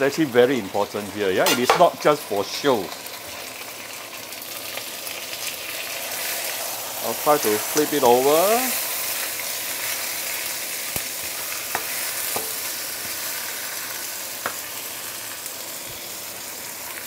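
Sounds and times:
fish sizzling in oil: 0:00.0 - 0:17.0
metal spatula tapping wok: 0:11.7 - 0:12.6.

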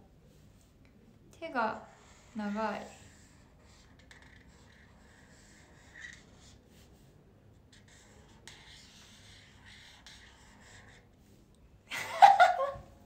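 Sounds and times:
pen scratching on paper: 0:01.8 - 0:11.1.

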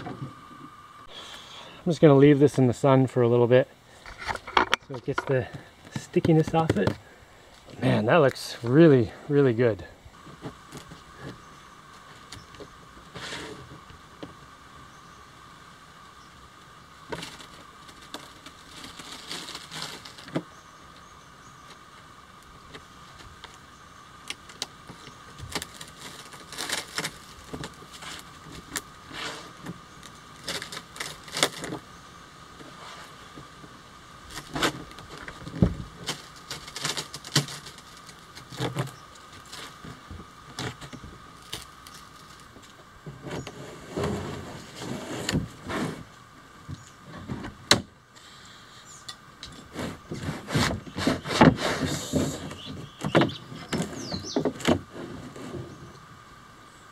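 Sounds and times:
kayak shell crackling and popping: 0:16.6 - 0:31.9, 0:32.5 - 0:48.3.

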